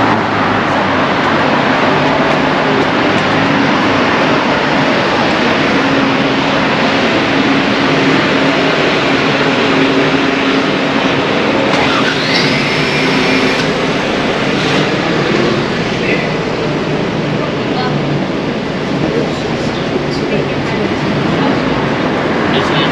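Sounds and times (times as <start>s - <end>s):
vehicle engine hum: 0.0s - 22.9s
high squeal: 11.7s - 14.2s.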